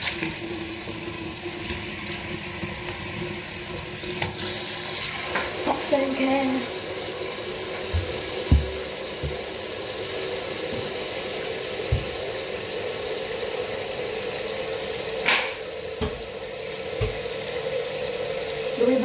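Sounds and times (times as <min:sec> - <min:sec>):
soft low thumps: 0:08.0 - 0:09.4.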